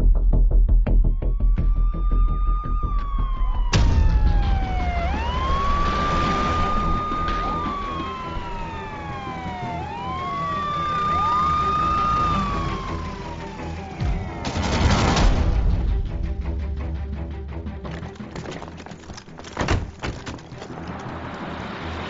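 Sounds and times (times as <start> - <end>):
siren wailing: 1.0 - 14.8.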